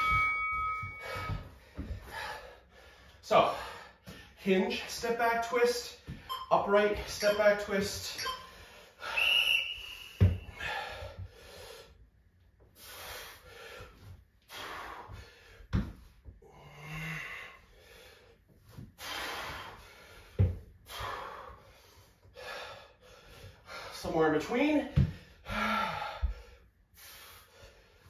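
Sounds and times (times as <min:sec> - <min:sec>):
steady high tone: 0:00.0 - 0:01.5, 0:06.3 - 0:10.7
feet thumping on rubber mat: 0:00.0 - 0:02.3, 0:10.1 - 0:10.8, 0:15.7 - 0:16.2, 0:20.3 - 0:20.7, 0:24.9 - 0:25.3
man breathing hard: 0:00.8 - 0:04.4, 0:08.5 - 0:12.1, 0:12.7 - 0:24.1, 0:25.0 - 0:28.0.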